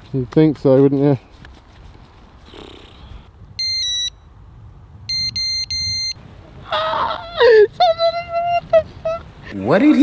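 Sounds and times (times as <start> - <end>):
electronic bite alarm beeping: 3.6 - 4.3, 5.1 - 6.2.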